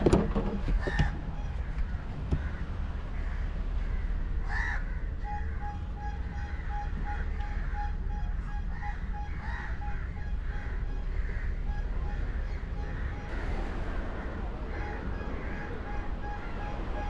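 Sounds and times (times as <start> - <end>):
crows cawing: 3.2 - 5.1, 8.7 - 11.6, 12.3 - 16.6
low rumble: 7.6 - 17.0.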